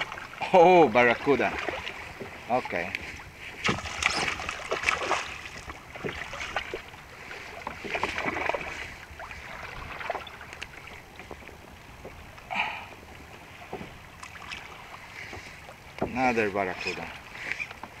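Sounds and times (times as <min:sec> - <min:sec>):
water noise: 0:00.0 - 0:18.0
wind: 0:00.0 - 0:18.0
fish thrashing and splashing: 0:03.5 - 0:10.5.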